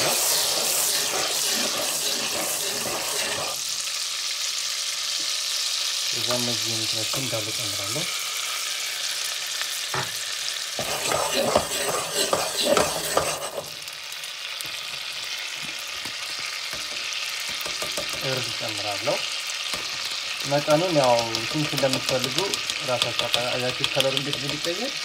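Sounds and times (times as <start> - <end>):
spatula scraping a pot: 0.0 - 3.6, 10.8 - 13.7, 16.2 - 18.3
butter sizzling in a pot: 0.0 - 25.0.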